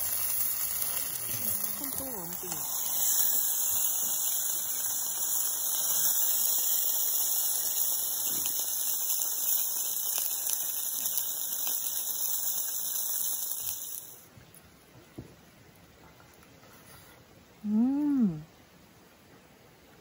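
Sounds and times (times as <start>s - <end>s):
chicken wings sizzling: 0.0s - 14.3s.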